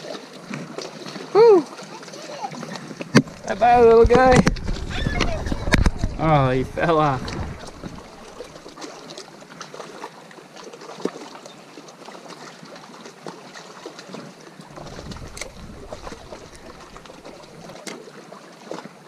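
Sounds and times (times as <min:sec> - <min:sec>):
small waves lapping rocks: 0:00.0 - 0:19.0
wind buffeting microphone: 0:03.3 - 0:08.7, 0:14.7 - 0:17.7.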